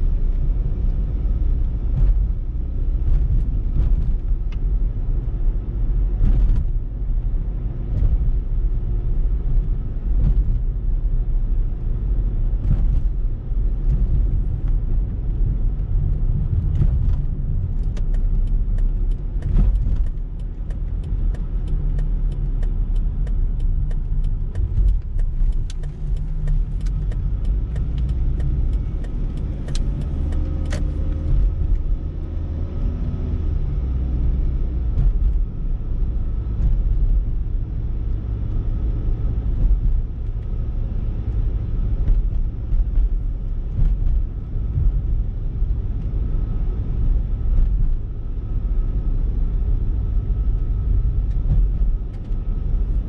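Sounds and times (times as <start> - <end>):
car cabin road and engine rumble: 0.0 - 53.0
light ticks: 17.8 - 31.9.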